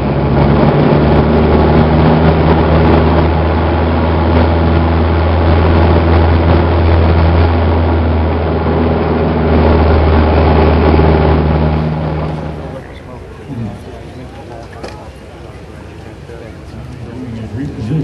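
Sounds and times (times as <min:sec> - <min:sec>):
airplane engine and propeller drone: 0:00.0 - 0:18.0.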